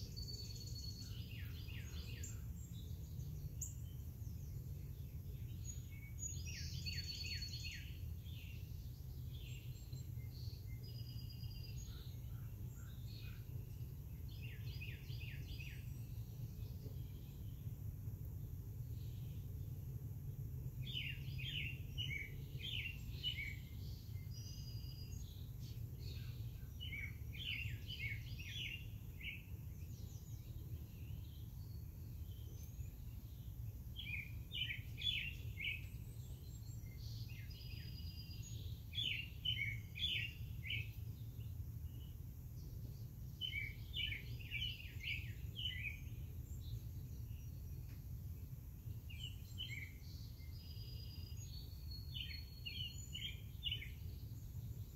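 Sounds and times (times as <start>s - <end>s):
faint bird chirps: 0.0s - 17.8s, 20.8s - 54.9s
songbird singing: 0.0s - 54.9s
low background rumble: 15.8s - 51.7s.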